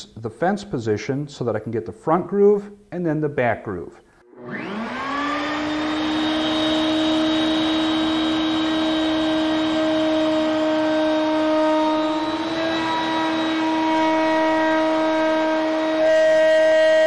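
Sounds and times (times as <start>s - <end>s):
router bit cutting wood: 4.3s - 17.0s
router motor whine: 4.3s - 17.0s.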